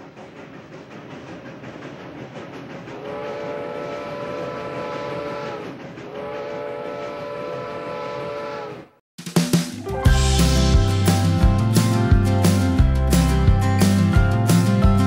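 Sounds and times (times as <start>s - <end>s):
steam train rumbling: 0.0s - 8.8s, 9.8s - 15.0s
steam train whistle: 3.0s - 9.0s.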